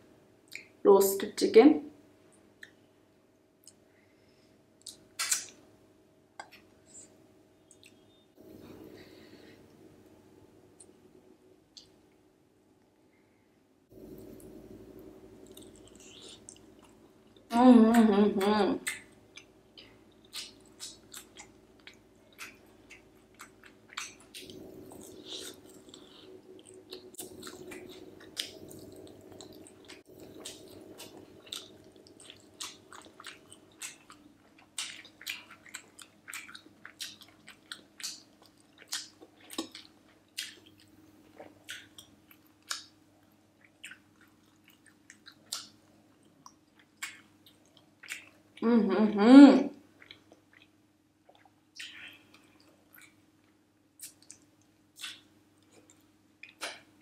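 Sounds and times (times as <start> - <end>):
faint steady hum: 0.0 - 57.0
wet mouth clicks and smacks: 4.8 - 5.6, 18.8 - 34.2, 34.8 - 40.8, 41.7 - 43.0, 54.0 - 56.9
chewing and biting chicken: 20.1 - 43.0.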